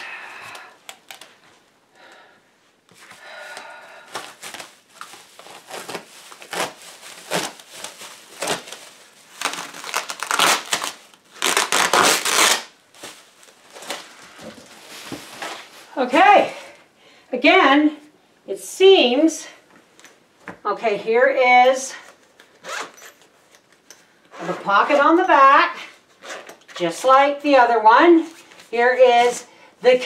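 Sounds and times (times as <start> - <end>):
foil packaging crinkling: 4.1 - 16.0.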